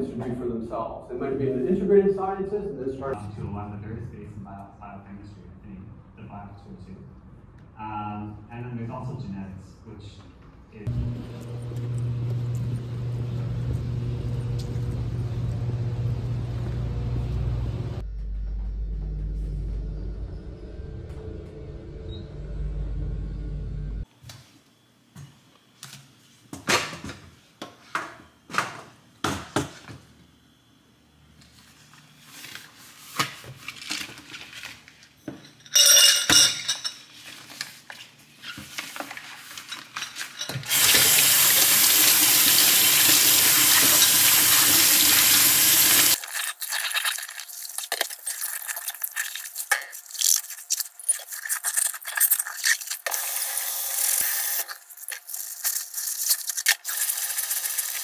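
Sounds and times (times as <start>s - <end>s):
tap running: 10.9s - 16.9s
glassware clinking: 35.4s - 37.1s.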